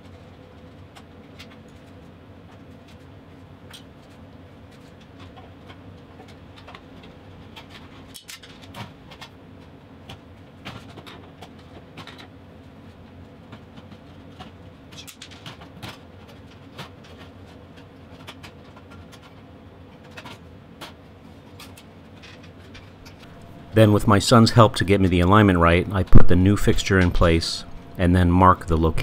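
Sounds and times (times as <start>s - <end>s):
steady low hum: 19.2s - 29.0s.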